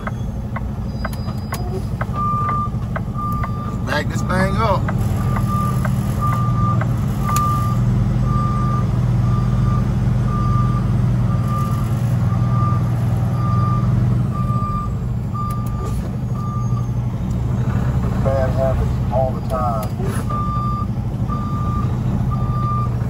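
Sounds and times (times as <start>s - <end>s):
diesel truck engine running: 0.0s - 23.0s
reversing alarm beeping: 1.0s - 4.6s, 5.2s - 12.8s, 13.4s - 17.0s, 20.3s - 23.0s.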